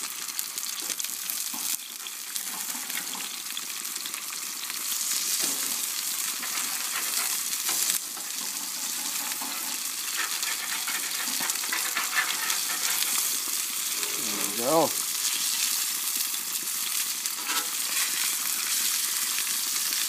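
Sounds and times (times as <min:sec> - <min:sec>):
food sizzling in a hot pan: 0:00.0 - 0:20.0.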